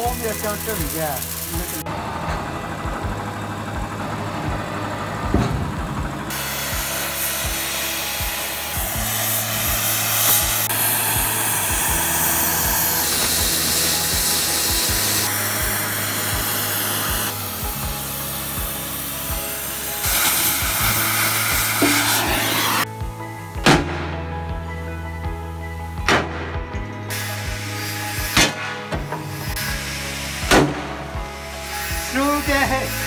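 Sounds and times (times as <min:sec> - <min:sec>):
cutting torch hissing: 0:00.0 - 0:05.4, 0:06.0 - 0:22.9, 0:27.1 - 0:33.0
background music with steady beat: 0:00.0 - 0:33.0.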